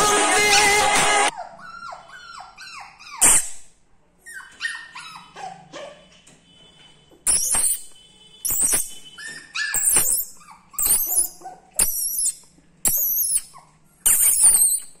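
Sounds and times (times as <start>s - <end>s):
puppy yapping: 0.4s - 3.6s, 4.2s - 6.1s, 8.5s - 15.0s.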